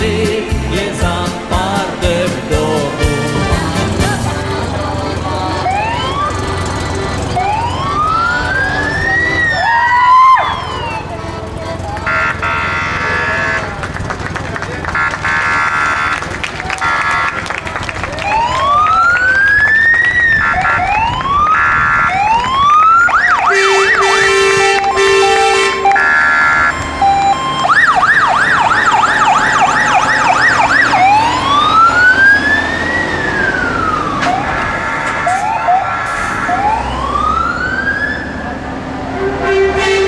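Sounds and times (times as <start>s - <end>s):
fire engine siren wailing and yelping: 5.2s - 13.9s, 14.8s - 40.0s
multi-tone horn blasts: 11.0s - 14.0s, 14.8s - 17.6s, 20.3s - 22.2s, 23.4s - 27.4s, 39.0s - 40.0s.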